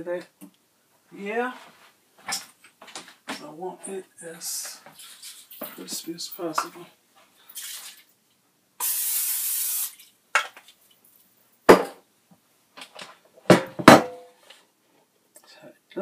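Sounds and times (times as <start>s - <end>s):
cooking oil spray hissing: 8.8s - 10.1s.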